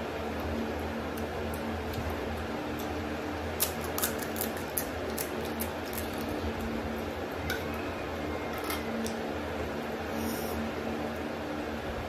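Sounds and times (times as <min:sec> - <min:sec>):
background hum: 0:00.0 - 0:12.0
crisp shell cracking: 0:03.6 - 0:06.8.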